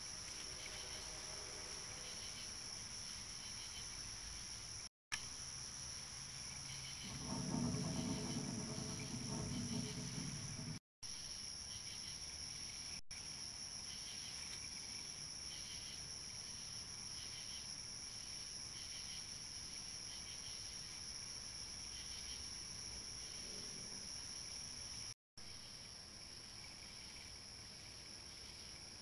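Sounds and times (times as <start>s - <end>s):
soft insect chirps: 0.0s - 7.1s, 11.1s - 29.0s
crickets trilling: 0.0s - 29.0s
low rustling: 6.8s - 10.8s.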